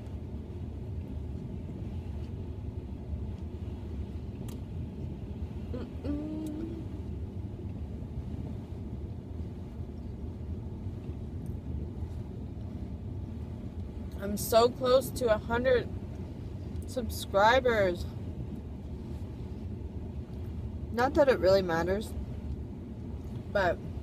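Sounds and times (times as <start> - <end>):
low rumble inside car: 0.0 - 24.0
short hum of voice: 5.7 - 7.0.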